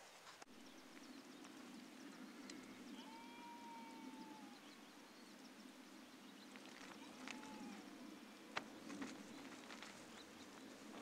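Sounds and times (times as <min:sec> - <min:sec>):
faint bird chirps: 0:00.5 - 0:11.0
distant animal call: 0:02.0 - 0:05.4, 0:06.5 - 0:09.5.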